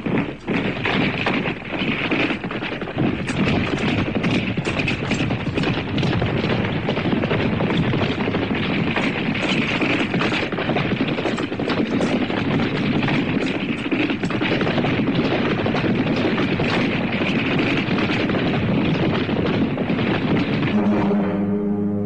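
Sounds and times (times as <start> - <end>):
horses galloping: 0.0 - 21.4
sustained musical chord: 20.7 - 22.0.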